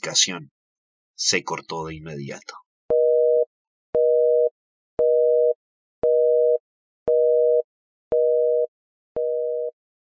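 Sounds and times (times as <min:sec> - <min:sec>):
telephone busy tone: 0:02.9 - 0:09.8.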